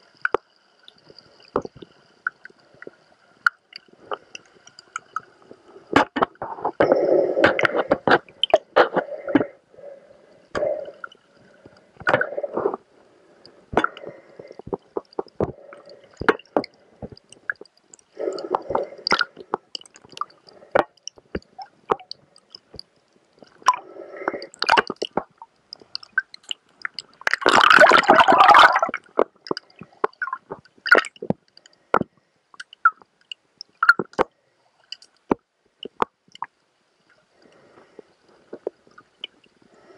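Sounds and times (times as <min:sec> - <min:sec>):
gurgling bubbles: 0:05.9 - 0:11.2, 0:13.7 - 0:22.8, 0:23.6 - 0:31.4
sharp underwater clicks: 0:13.7 - 0:36.6.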